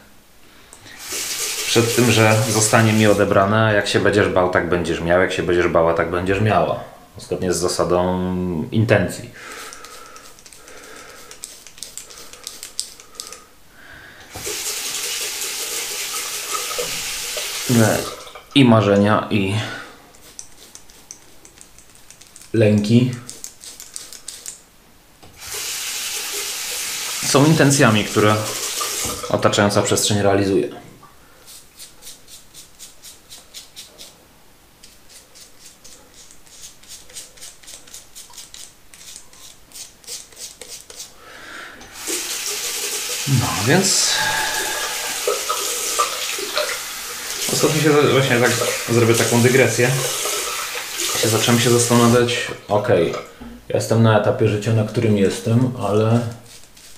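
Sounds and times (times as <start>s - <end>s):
tap water running into sink: 1.0s - 3.4s, 14.3s - 18.5s, 25.4s - 29.4s, 41.9s - 43.8s, 44.4s - 52.1s
razor scraping stubble: 9.5s - 13.4s, 20.1s - 24.6s, 31.4s - 34.2s, 34.8s - 41.2s, 56.1s - 56.9s.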